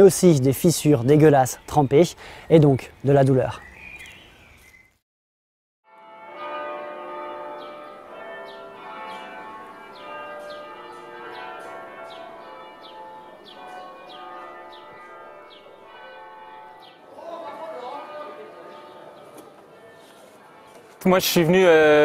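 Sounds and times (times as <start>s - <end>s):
church bells ringing: 5.9s - 22.0s.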